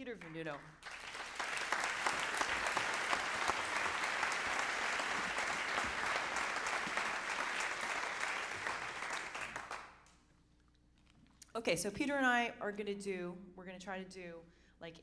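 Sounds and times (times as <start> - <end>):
audience applauding: 0.2 - 10.1.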